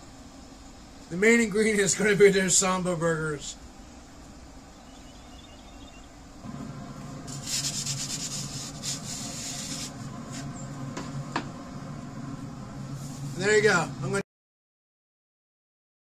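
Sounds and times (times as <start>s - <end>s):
steady low hum: 0.0s - 14.2s
wooden peel scraping: 7.3s - 10.5s.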